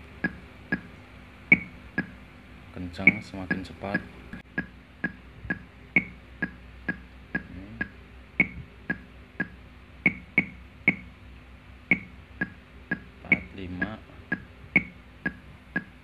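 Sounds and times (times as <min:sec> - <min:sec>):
metronome clicking: 0:03.0 - 0:11.1, 0:11.9 - 0:15.9.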